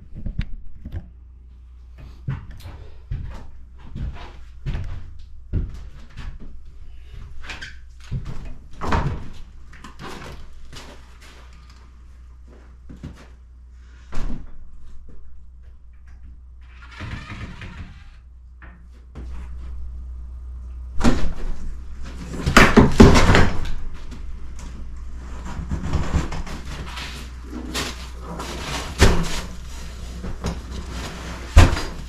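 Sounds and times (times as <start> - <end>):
door scraping: 16.6 - 18.2, 21.0 - 32.0.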